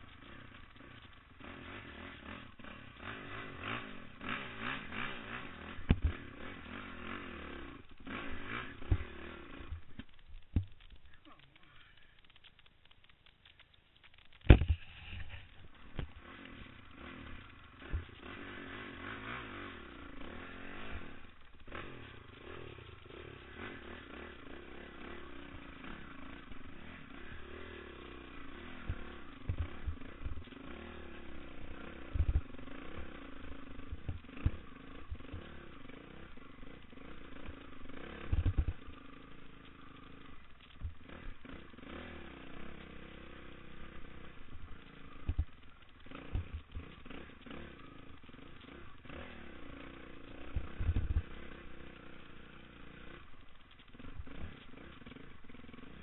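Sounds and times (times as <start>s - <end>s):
dirt bike engine revving: 0.0s - 56.0s
knocks and thumps from bumpy ground: 5.8s - 6.3s, 9.7s - 11.0s, 14.4s - 16.2s.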